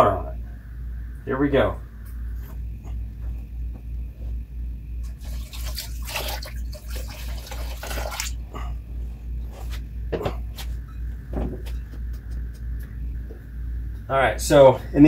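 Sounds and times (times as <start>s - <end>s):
water splashing into plastic tub: 5.1s - 8.4s.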